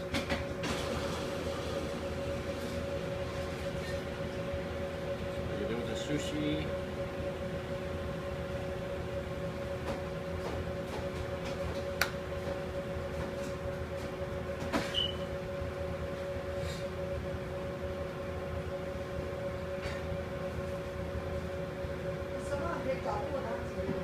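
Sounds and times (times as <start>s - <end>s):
machine hum: 0.0s - 24.0s
brief high squeak: 14.8s - 15.3s.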